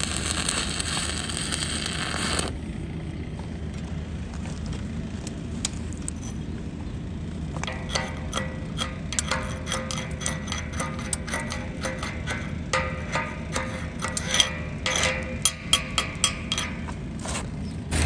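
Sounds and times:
arc welding crackling hiss: 0.0s - 2.6s.

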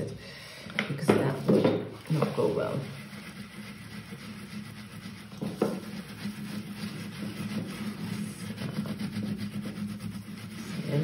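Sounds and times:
sponge rubbing wax surface: 0.9s - 11.0s
knock: 1.0s - 1.9s, 5.4s - 5.9s.

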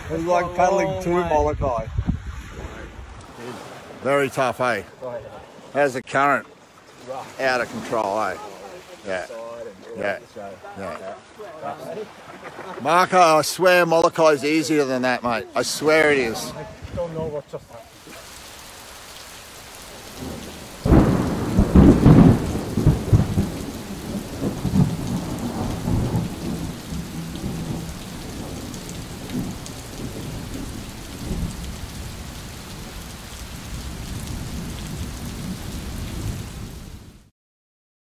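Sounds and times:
steady rain hiss: 0.0s - 37.3s
thunderclap and rumble: 19.9s - 37.2s.

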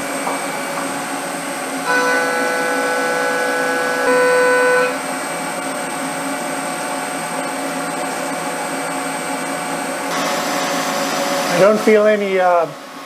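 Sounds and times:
milling machine running: 0.0s - 13.0s
pitched ringing of milling cut: 1.8s - 5.0s
coolant spray hiss: 10.1s - 13.0s.

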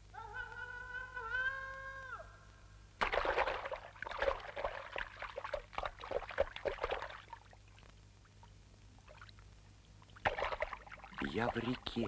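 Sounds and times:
faint water rippling: 2.5s - 12.0s
water splashing and sloshing: 3.0s - 12.0s.

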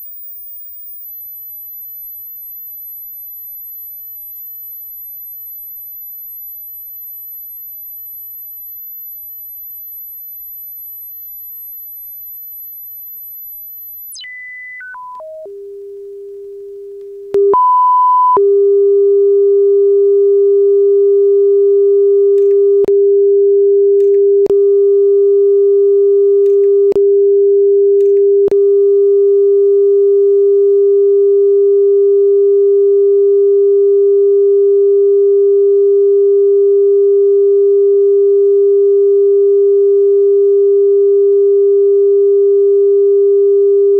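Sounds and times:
tiny clicks: 0.0s - 14.2s
high steady test tone: 0.0s - 15.5s.

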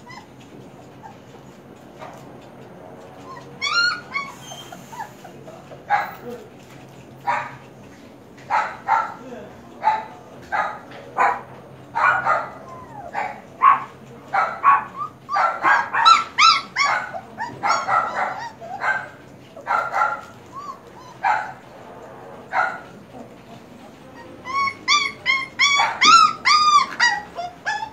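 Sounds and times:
puppies yipping and whining: 0.0s - 6.3s, 12.1s - 21.7s, 22.6s - 27.9s.

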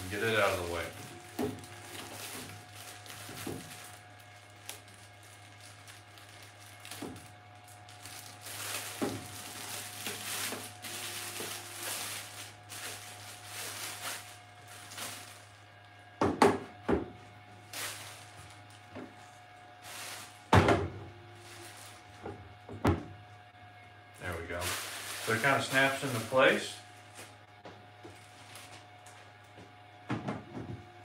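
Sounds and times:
plastic bag crinkling: 0.0s - 15.7s, 17.7s - 18.9s, 24.3s - 27.2s.

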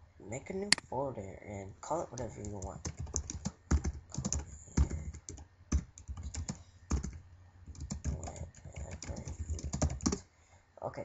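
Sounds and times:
computer keyboard typing: 2.1s - 10.2s.

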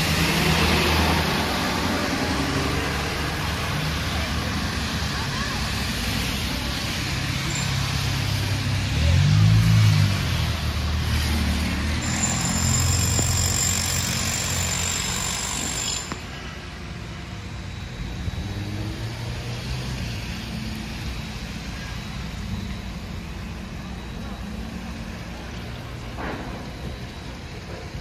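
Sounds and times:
tyres hissing on wet road: 0.0s - 13.7s.

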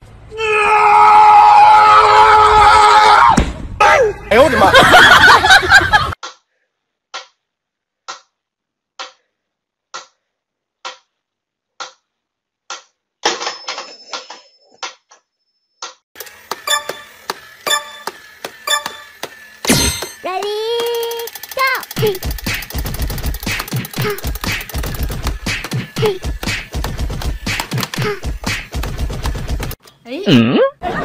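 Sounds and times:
toy rapid clicking and beeping: 16.2s - 26.8s
metronome ticking: 16.7s - 19.1s.

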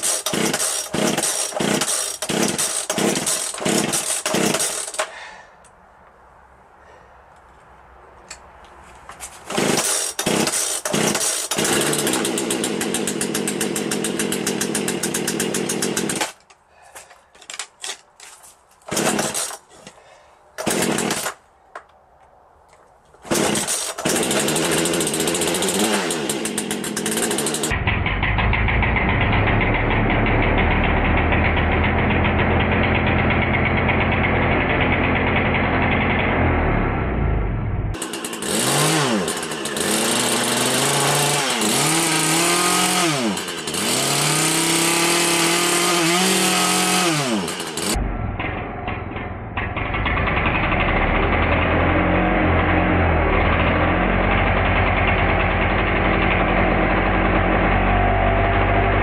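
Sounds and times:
chainsaw engine spun by motor: 0.0s - 5.2s, 9.5s - 16.4s, 18.9s - 19.6s, 20.6s - 21.4s, 23.3s - 36.6s, 37.9s - 57.9s.

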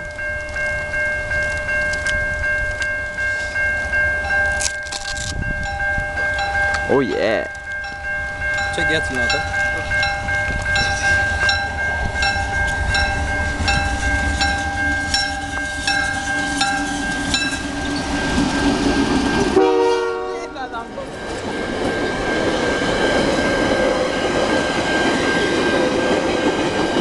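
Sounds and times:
level-crossing bell dinging: 0.0s - 27.0s
train rumbling: 0.0s - 27.0s
train wheels on rails: 0.0s - 27.0s
train horn blast: 19.5s - 20.8s.

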